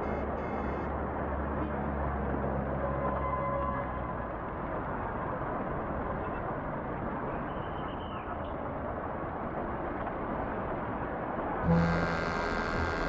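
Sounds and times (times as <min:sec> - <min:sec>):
bus engine and road rumble: 0:00.0 - 0:13.0
faint short squeal: 0:11.7 - 0:13.0.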